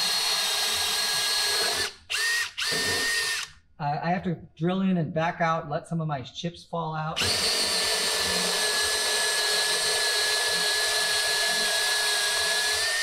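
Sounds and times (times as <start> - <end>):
drill whining through wood: 0.0 - 3.6, 7.2 - 13.0.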